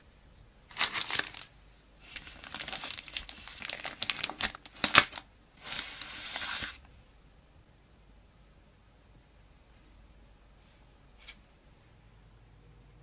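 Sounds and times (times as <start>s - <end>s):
plastic packaging crinkling: 0.7s - 6.9s.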